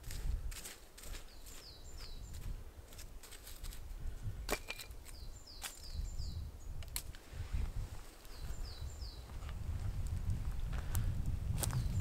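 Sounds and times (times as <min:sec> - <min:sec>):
bird singing falling notes: 0:04.5 - 0:06.9.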